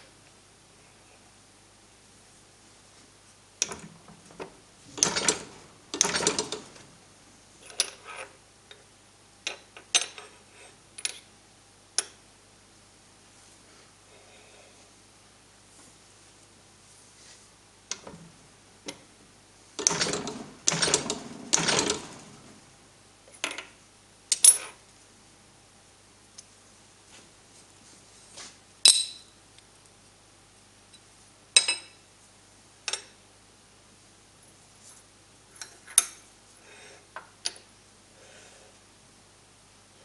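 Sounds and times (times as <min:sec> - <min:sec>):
steel pieces clinking and knocking: 0:28.9 - 0:29.3.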